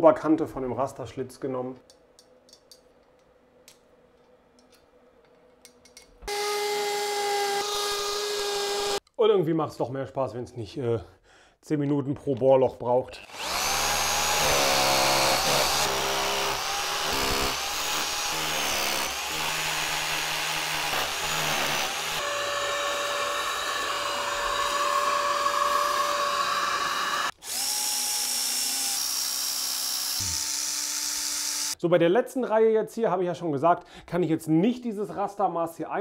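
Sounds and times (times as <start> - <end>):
hammer drill boring into masonry: 6.3 - 9.0, 13.2 - 31.8
cordless drill driving screws: 13.2 - 31.8.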